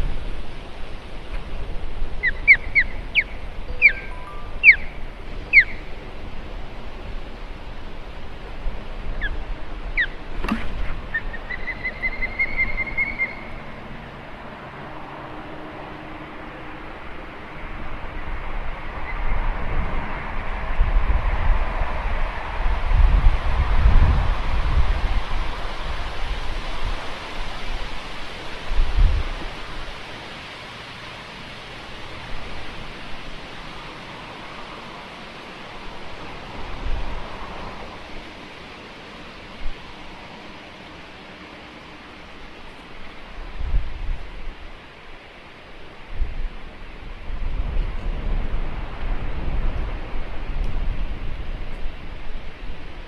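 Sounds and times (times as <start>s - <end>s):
wind rumbling on microphone: 0.0s - 53.0s
down-slurred bird calls: 2.2s - 6.0s, 9.2s - 14.0s
high piping bird notes: 2.2s - 6.6s, 10.8s - 14.3s.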